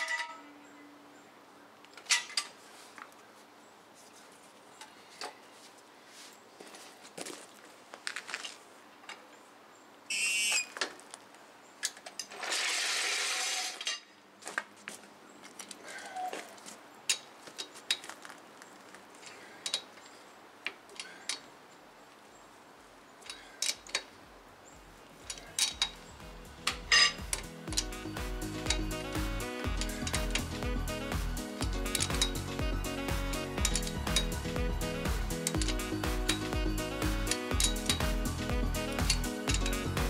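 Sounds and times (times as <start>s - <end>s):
metal tools clanking: 0.0s - 0.5s, 25.2s - 28.0s, 29.7s - 30.4s, 33.6s - 34.4s, 35.4s - 36.5s, 37.3s - 38.2s, 38.9s - 39.8s.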